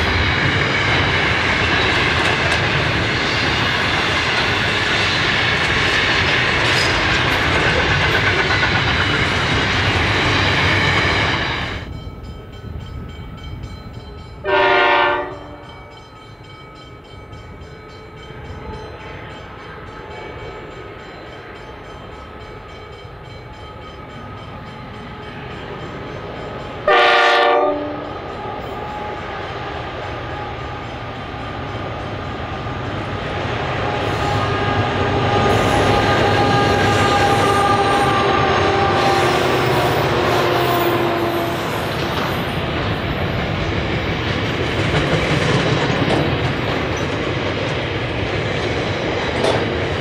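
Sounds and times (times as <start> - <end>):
freight train wagons rolling past: 0.0 - 50.0
low train rumble: 0.0 - 50.0
locomotive horn: 14.4 - 15.8, 26.8 - 29.4, 34.0 - 41.9.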